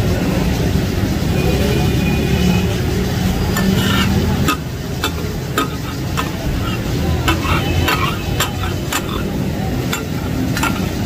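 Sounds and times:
metal spatulas clanking on griddle: 3.5s - 11.0s.

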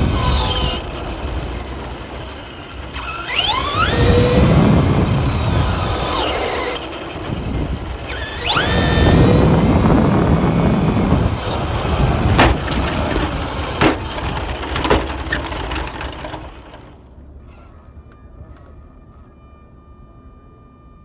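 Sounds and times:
tyres rumbling on pavement: 0.0s - 19.2s
rc car motor whining: 0.0s - 21.0s
sharp knocks of bumps: 7.5s - 17.0s.

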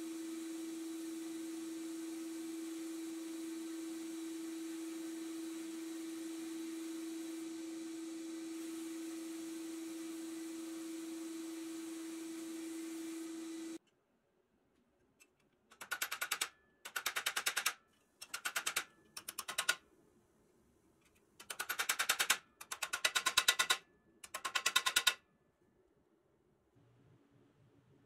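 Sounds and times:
small hammer tapping on steel: 15.7s - 19.8s, 21.4s - 25.2s.

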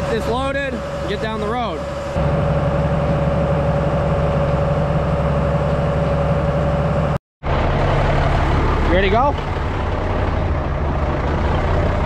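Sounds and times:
steady pump whine: 0.0s - 12.0s
tractor engine running: 0.0s - 12.0s.

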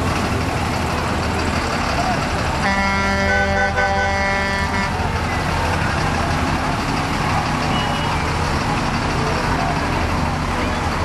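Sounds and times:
low engine rumble: 0.0s - 11.0s
truck horn blast: 2.6s - 5.1s.

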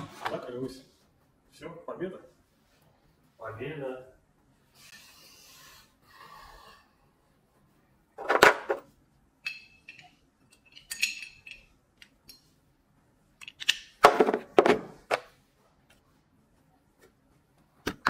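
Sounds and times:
metal clinks: 9.4s - 12.5s.

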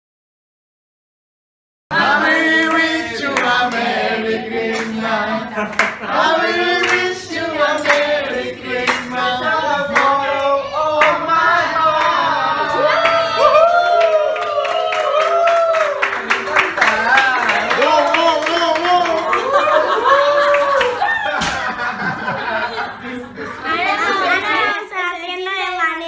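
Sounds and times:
group of people singing: 1.9s - 13.4s
hand claps: 5.7s - 6.0s, 6.8s - 7.1s, 7.8s - 8.1s, 8.9s - 9.1s.

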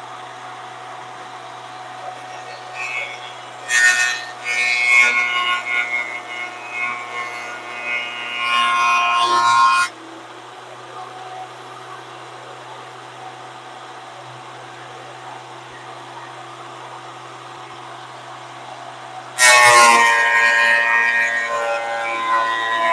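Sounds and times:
planer cutting board: 19.4s - 22.9s.

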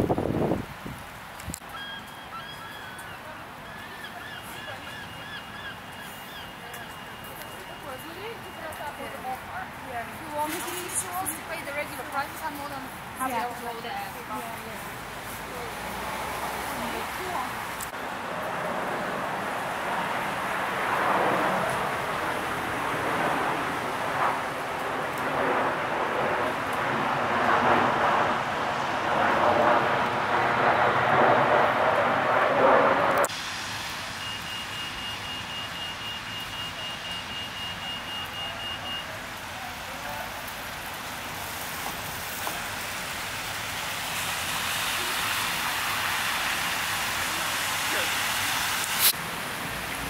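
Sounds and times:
dense traffic noise: 0.0s - 50.0s
wet street background: 0.0s - 50.0s
high electronic beeps: 34.2s - 39.0s.

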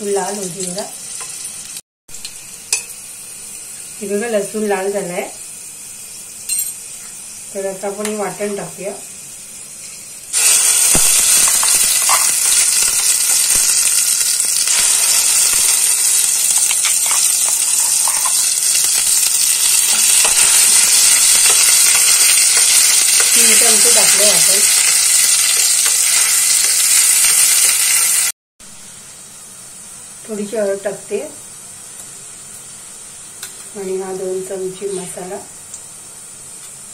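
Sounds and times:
paste sizzling in hot oil: 0.0s - 28.3s.

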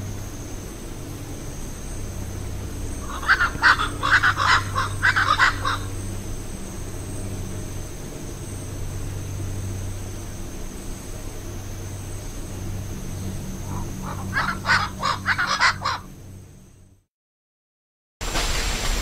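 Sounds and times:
harsh animal calls: 2.9s - 6.0s, 13.6s - 16.1s.

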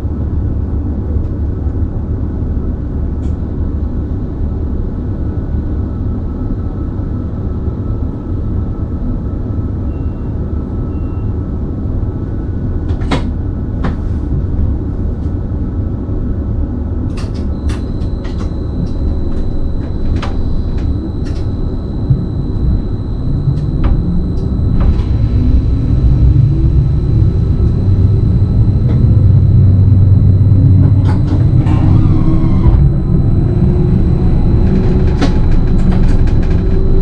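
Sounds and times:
train running gear rumble: 0.0s - 37.0s
rising traction whine: 17.2s - 37.0s.

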